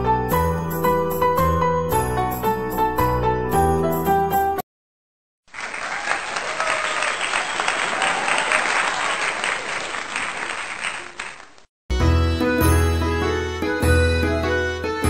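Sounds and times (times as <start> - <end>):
crowd applauding: 5.5 - 11.7.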